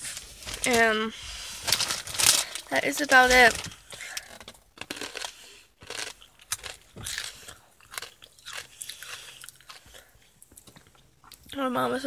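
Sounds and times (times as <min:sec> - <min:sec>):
person chewing crunchy chips: 0:03.1 - 0:11.5.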